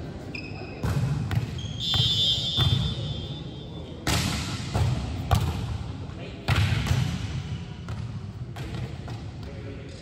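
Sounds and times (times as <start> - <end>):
high whistle blast: 1.7 - 3.7
volleyball thumps: 4.0 - 5.8, 6.4 - 9.5.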